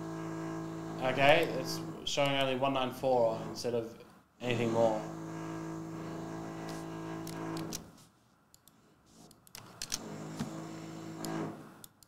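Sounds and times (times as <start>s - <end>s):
power drill motor whining: 0.0s - 3.8s, 4.4s - 7.9s, 9.6s - 11.8s.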